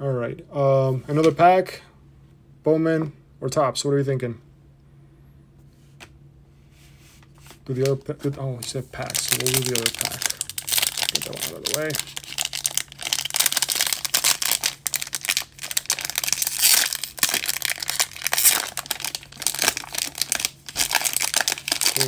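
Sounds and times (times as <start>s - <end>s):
wrapper crinkling and tearing: 8.6s - 22.0s.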